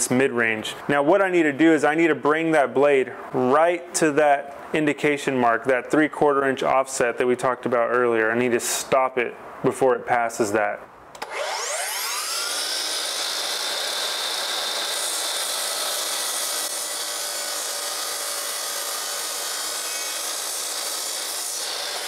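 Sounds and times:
miter saw motor whine: 0:11.2 - 0:22.0
saw blade cutting wood: 0:11.2 - 0:22.0.

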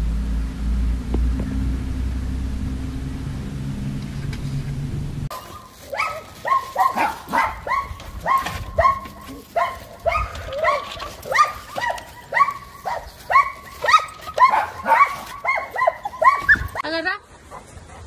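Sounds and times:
dog barking high-pitched: 0:05.3 - 0:16.9.

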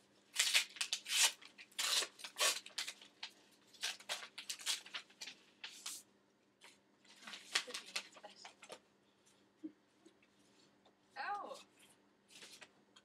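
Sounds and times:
paper rustling: 0:00.4 - 0:08.8, 0:11.8 - 0:12.8.

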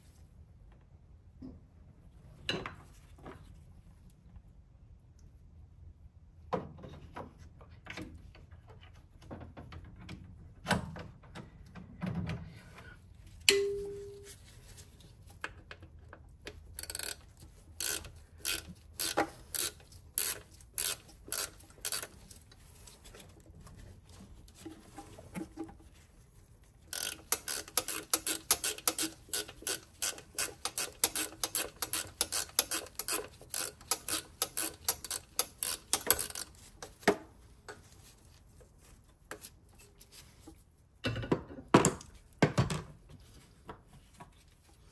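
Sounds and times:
sharp metallic clink: 0:13.5 - 0:14.3
hand ratchet clicking: 0:16.8 - 0:22.2, 0:26.9 - 0:37.0.

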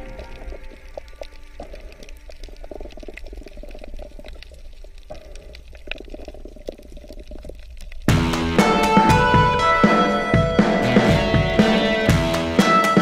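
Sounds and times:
crackle of small clicks: 0:00.0 - 0:08.1
low rumble of water: 0:00.0 - 0:08.2.

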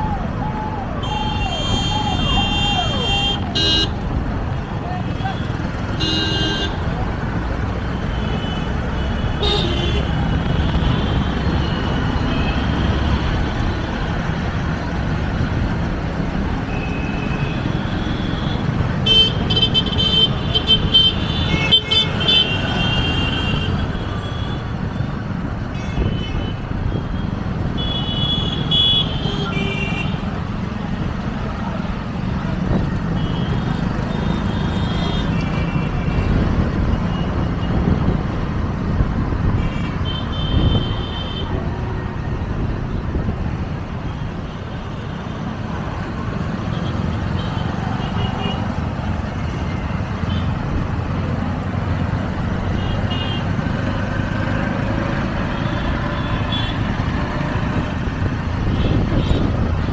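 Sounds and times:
traffic rumble and road noise: 0:00.0 - 0:59.9
vehicle horns honking: 0:01.0 - 0:04.0, 0:05.2 - 0:06.8, 0:08.1 - 0:13.2, 0:16.7 - 0:24.7, 0:27.8 - 0:30.2, 0:39.6 - 0:41.6.

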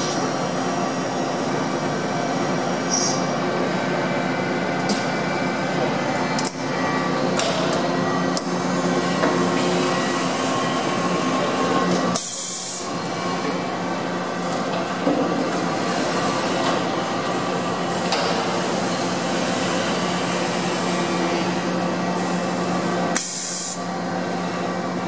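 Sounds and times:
steady machine hum: 0:00.0 - 0:25.0
compressed air hisses: 0:23.2 - 0:23.8.

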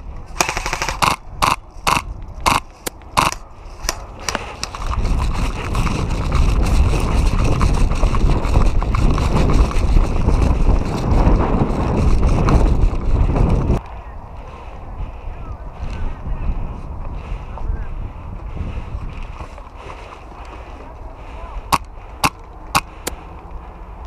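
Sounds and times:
wind rumble on microphone: 0:00.0 - 0:24.0
footsteps crunching on rough ground: 0:03.6 - 0:13.8.

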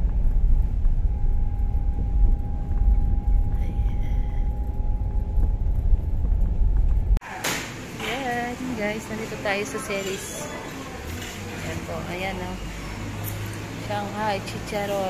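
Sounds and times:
car road noise rumble: 0:00.0 - 0:07.2.

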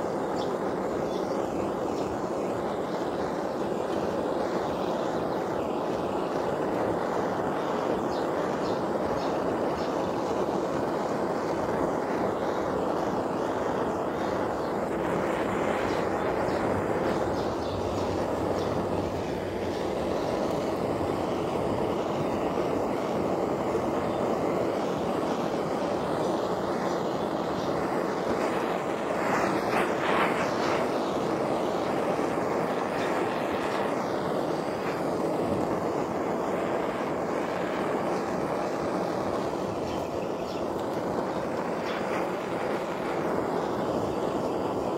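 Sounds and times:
gas blowtorch burning: 0:00.0 - 0:44.9.

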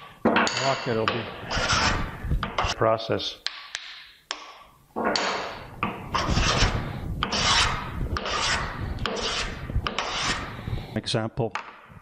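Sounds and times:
hand plane rasping on wood: 0:01.4 - 0:02.0, 0:06.2 - 0:10.5.

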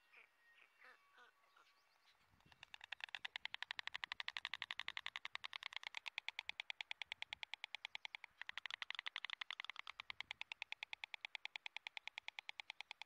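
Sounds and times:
storks clicking calls: 0:02.5 - 0:13.0.

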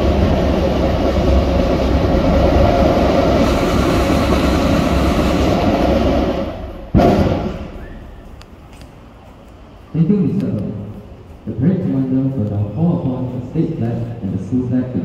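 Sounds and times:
train passing: 0:00.0 - 0:15.0
loud thump: 0:06.8 - 0:08.0.

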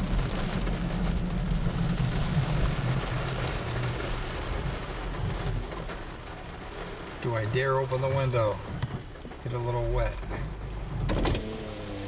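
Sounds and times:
low rumble: 0:00.0 - 0:05.9
heavy rain on car roof: 0:00.0 - 0:12.0.

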